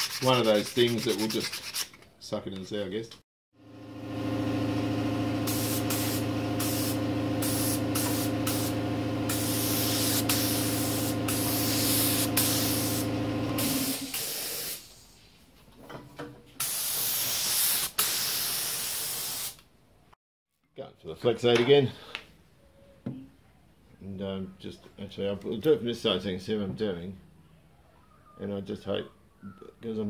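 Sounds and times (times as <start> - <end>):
machine hum: 3.6 - 13.9
spray gun hissing: 5.4 - 14.9, 16.6 - 19.6.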